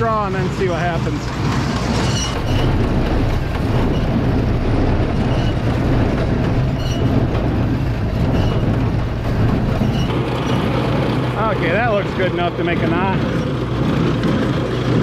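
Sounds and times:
baler running: 0:00.0 - 0:15.0
tractor humming: 0:00.0 - 0:15.0
short high squeaks: 0:01.7 - 0:10.7.

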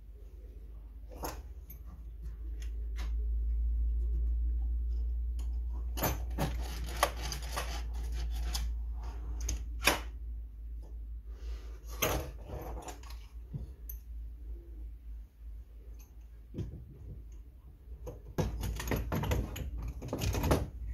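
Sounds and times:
low steady hum: 0:00.0 - 0:20.9
wood scraping: 0:06.2 - 0:09.3.

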